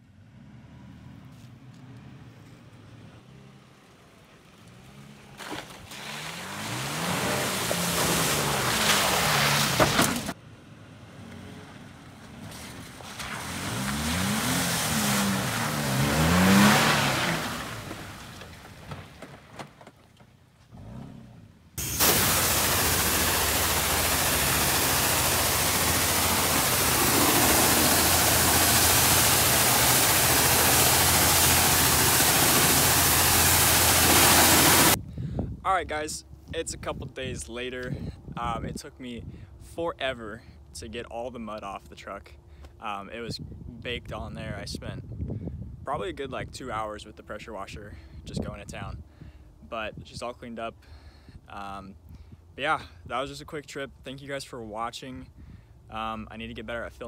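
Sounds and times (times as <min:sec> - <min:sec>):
pickup truck engine revving: 0:06.0 - 0:10.3, 0:13.3 - 0:18.4, 0:20.7 - 0:35.0
loud rushing noise: 0:21.8 - 0:35.0
low hum: 0:21.8 - 0:35.0.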